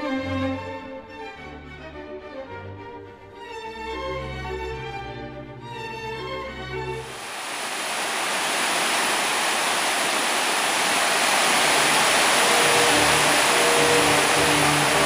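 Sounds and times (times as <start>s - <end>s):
string music: 0.0s - 7.1s, 12.2s - 15.0s
water rushing over boulders: 7.0s - 15.0s.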